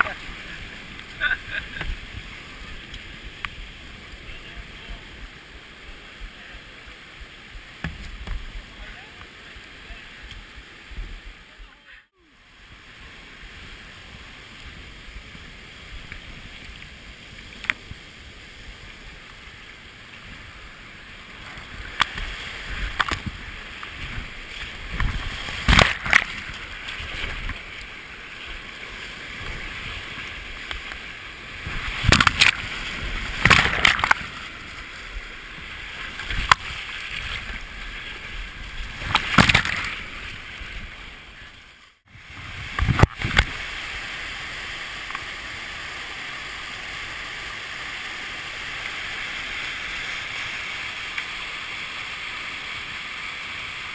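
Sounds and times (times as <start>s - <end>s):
rushing whitewater: 0.0s - 53.9s
paddle splashes and knocks: 7.6s - 8.6s, 21.5s - 31.0s, 31.6s - 34.8s, 35.6s - 40.9s.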